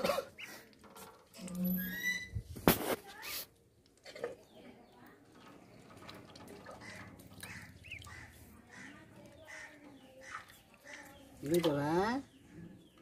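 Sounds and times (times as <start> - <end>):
duckling dabbling in water: 5.7 - 11.9.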